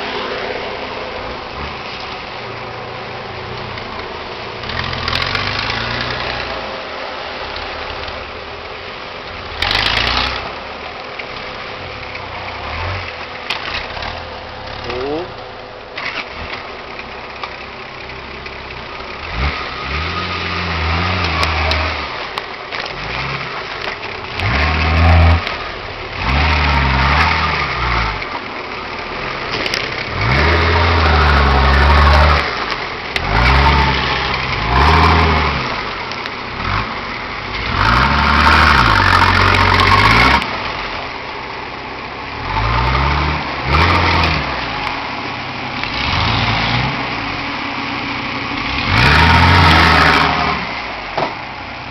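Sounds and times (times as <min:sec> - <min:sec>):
off-road engine revving in bursts: 0:04.6 - 0:06.8, 0:09.4 - 0:10.7, 0:19.2 - 0:28.4, 0:29.2 - 0:40.9, 0:42.3 - 0:44.9, 0:45.7 - 0:51.0.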